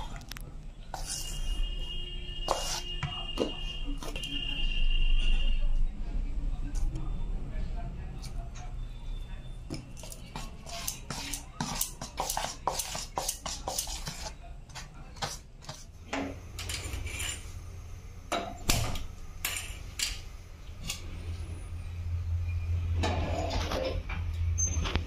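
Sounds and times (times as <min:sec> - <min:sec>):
metal spoon stirring batter in bowl: 0:00.0 - 0:05.4, 0:08.1 - 0:17.6.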